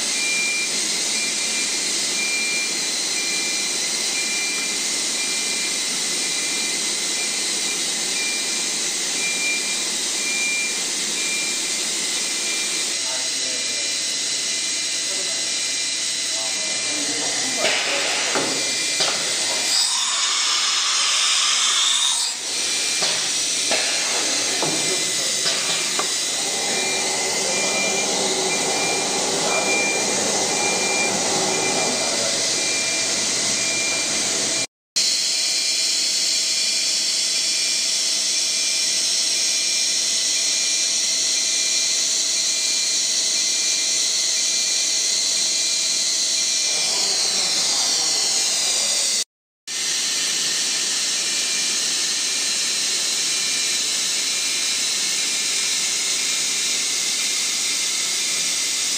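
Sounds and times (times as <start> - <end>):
router whirring hiss: 0.9 - 38.6, 41.6 - 49.2
whine gliding up and down: 24.0 - 34.2.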